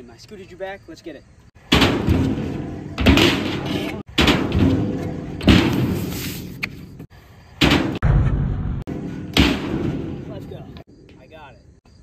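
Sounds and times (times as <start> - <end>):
scooter banging onto metal ramp: 1.6 - 6.1, 7.6 - 8.0, 8.9 - 10.4.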